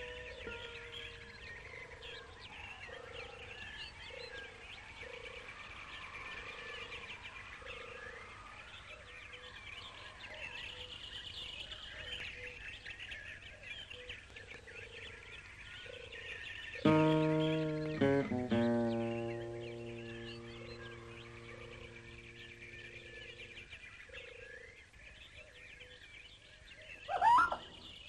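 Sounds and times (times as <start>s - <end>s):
wild birds chirping and singing: 0.0s - 28.0s
repeated low note: 16.9s - 23.6s.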